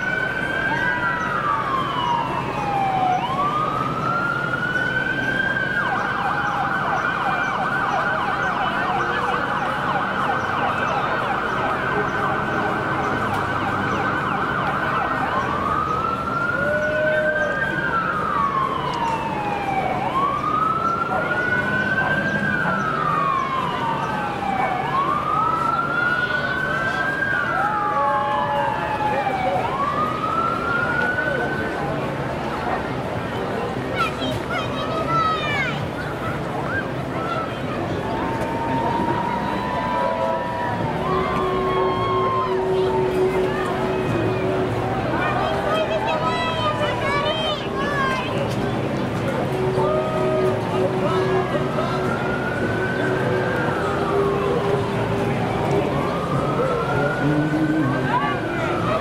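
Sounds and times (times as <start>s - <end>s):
electronic siren wailing: 38.2s - 46.2s, 49.5s - 59.0s.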